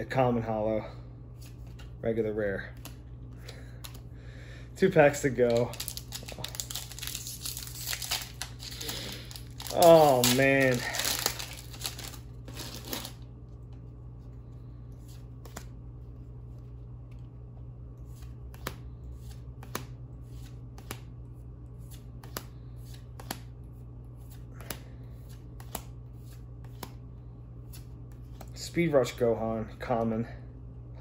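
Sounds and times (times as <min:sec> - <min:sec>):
trading cards flipping and sliding: 0:01.3 - 0:04.1, 0:05.0 - 0:17.3, 0:17.9 - 0:28.6
card rustling: 0:04.9 - 0:17.3.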